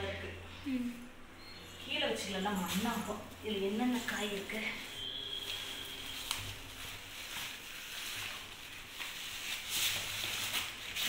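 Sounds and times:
bag rustling and crinkling: 0:02.3 - 0:11.0.

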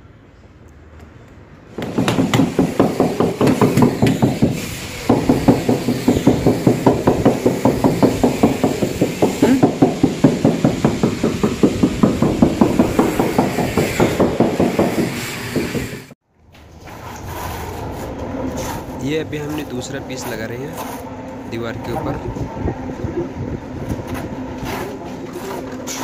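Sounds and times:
knocking on a marble slab: 0:01.8 - 0:04.3.

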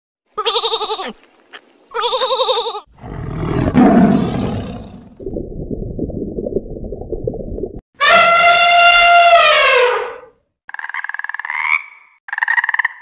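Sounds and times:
sheep bleating: 0:00.4 - 0:01.2, 0:01.9 - 0:02.9
tiger roar: 0:02.9 - 0:05.2
muffled low rumbling: 0:05.1 - 0:07.8.

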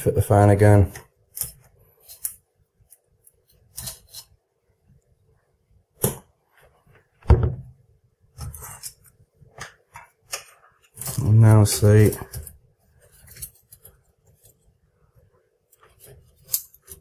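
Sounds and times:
loud knock and thud: 0:07.3 - 0:07.7.

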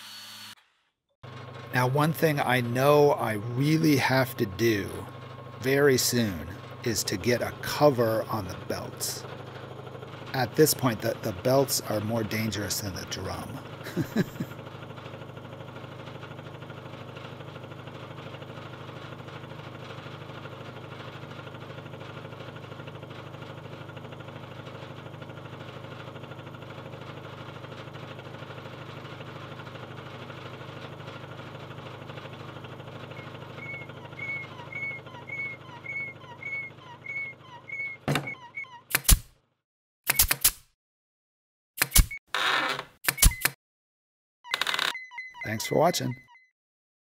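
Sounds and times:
drum sander motor humming: 0:01.2 - 0:38.7
chirping squeaks: 0:33.1 - 0:39.0, 0:44.5 - 0:46.5.

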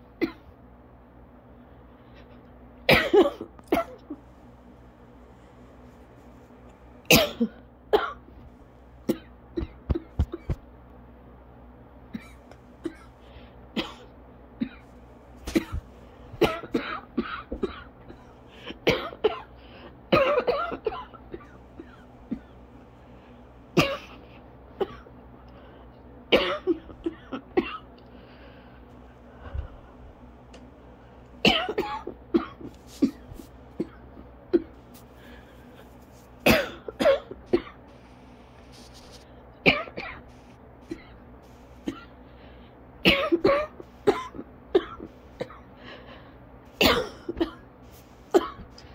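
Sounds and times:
person coughing: 0:02.9 - 0:04.2, 0:07.1 - 0:08.3, 0:12.1 - 0:13.1, 0:13.8 - 0:15.8, 0:16.4 - 0:19.5, 0:20.1 - 0:22.6, 0:23.8 - 0:25.1, 0:26.3 - 0:27.9, 0:31.4 - 0:35.4, 0:36.4 - 0:37.8, 0:39.6 - 0:40.2, 0:43.0 - 0:45.7, 0:46.8 - 0:47.6, 0:48.3 - 0:48.8.

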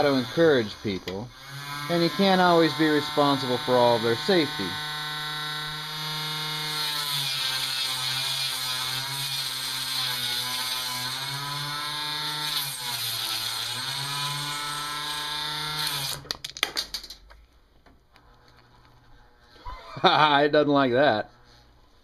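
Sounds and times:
electric motor whining: 0:00.0 - 0:16.2.

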